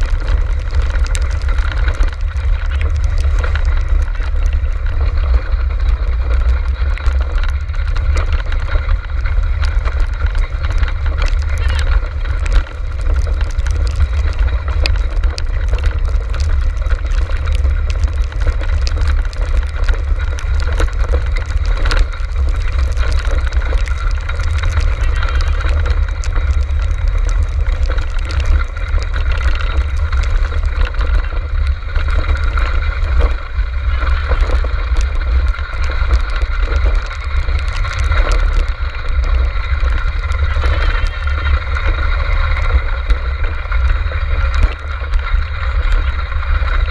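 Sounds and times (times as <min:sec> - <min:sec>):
cart rumbling and rattling: 0:00.0 - 0:46.9.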